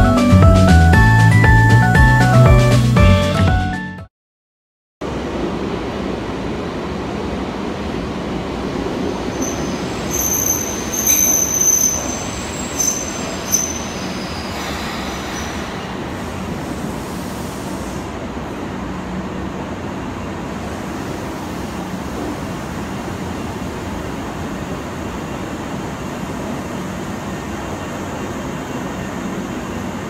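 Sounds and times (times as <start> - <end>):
train wheels and motors rumbling: 5.0 - 30.0
high-pitched wheel squeals: 9.3 - 15.8.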